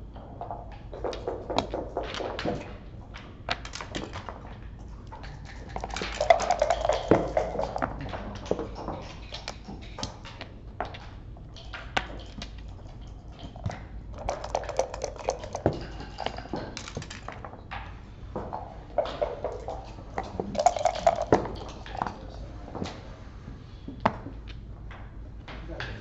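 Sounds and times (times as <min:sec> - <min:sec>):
checkers and dice clicking on board: 0:05.3 - 0:08.0, 0:12.2 - 0:17.3.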